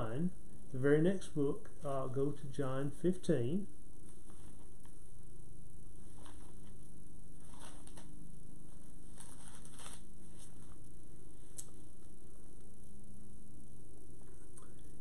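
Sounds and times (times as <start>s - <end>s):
low background hum: 0.0s - 15.0s
pages rustling: 4.0s - 5.0s, 6.0s - 12.2s.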